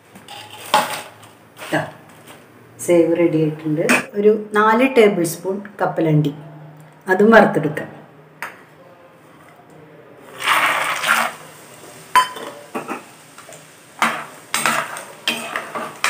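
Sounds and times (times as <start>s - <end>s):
peanuts sizzling in hot oil: 10.3s - 16.0s
metal ladle clinking on pan: 12.1s - 13.1s, 14.0s - 16.0s.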